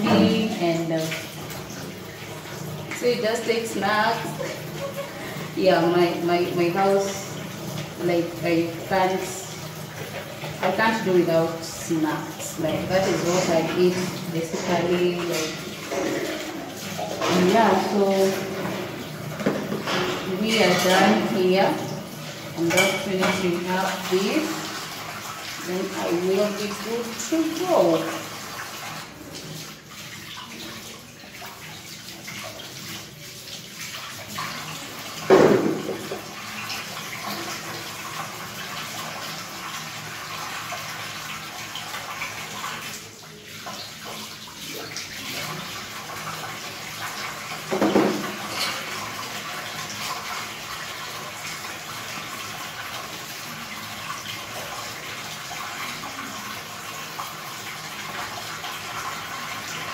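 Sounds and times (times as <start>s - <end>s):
tap running into sink: 0.0s - 3.1s, 14.5s - 21.4s, 34.4s - 37.8s, 47.5s - 49.0s
dishes being rinsed: 0.0s - 59.9s.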